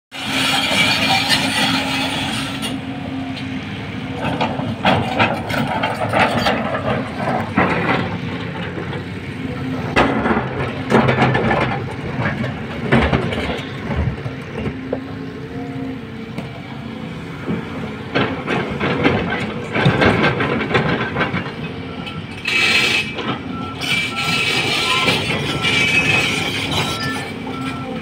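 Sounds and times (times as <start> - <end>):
excavator diesel engine humming: 0.2 - 28.0
bucket clanking and scraping earth: 4.2 - 9.1, 9.8 - 15.1.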